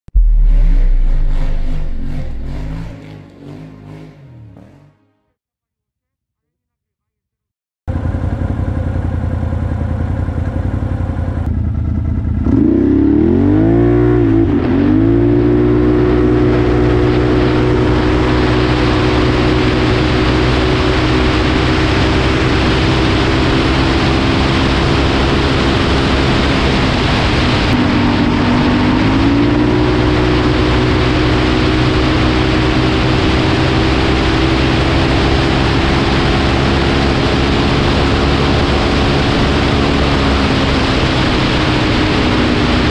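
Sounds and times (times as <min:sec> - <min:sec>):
atv engine revving: 0:01.3 - 0:05.1, 0:07.9 - 0:42.9
wind rush on microphone: 0:16.3 - 0:42.9.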